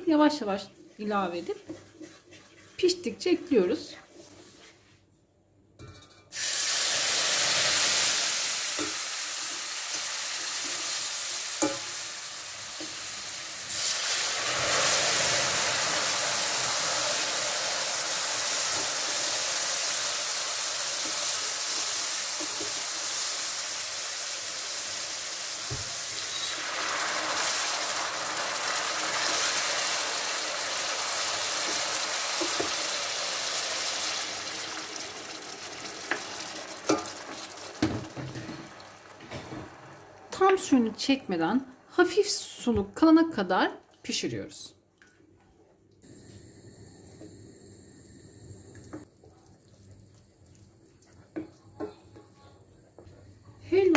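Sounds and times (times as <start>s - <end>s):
syrup hissing and sizzling: 6.3s - 41.2s.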